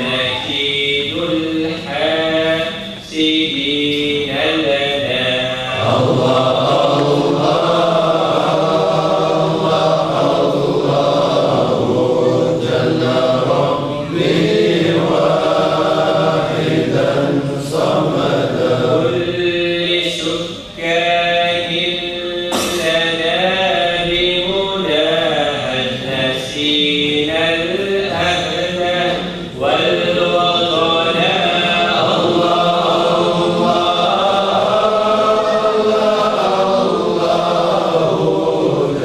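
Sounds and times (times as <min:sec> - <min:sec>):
men chanting in unison: 0:00.0 - 0:39.0.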